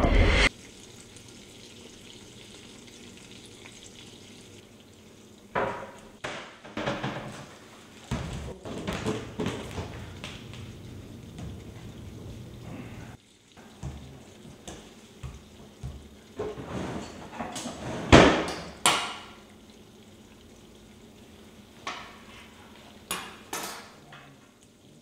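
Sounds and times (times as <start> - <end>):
knocks and thuds on countertop: 5.6 - 7.5, 8.1 - 10.6, 13.8 - 16.6, 18.0 - 19.3.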